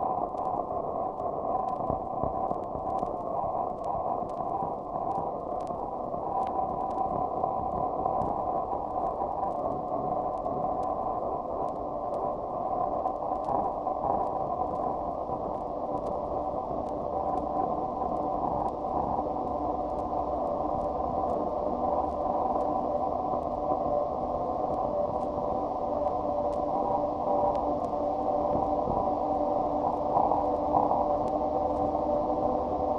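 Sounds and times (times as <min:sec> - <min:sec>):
muffled static-like noise: 0:00.0 - 0:32.9
faint clicks: 0:01.2 - 0:05.8, 0:06.4 - 0:08.4, 0:11.6 - 0:23.9.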